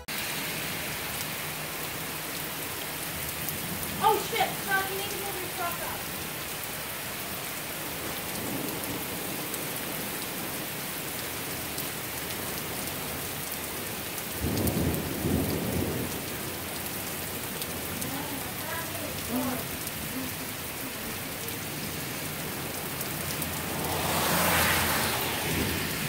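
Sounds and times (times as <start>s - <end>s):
heavy rain: 0.0s - 26.0s
thunder rumble: 13.8s - 26.0s.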